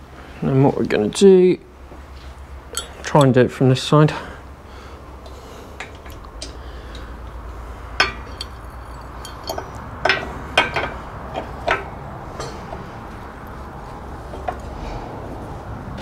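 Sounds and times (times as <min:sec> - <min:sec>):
metal clinks and knocks: 0:02.7 - 0:03.4, 0:07.8 - 0:13.6.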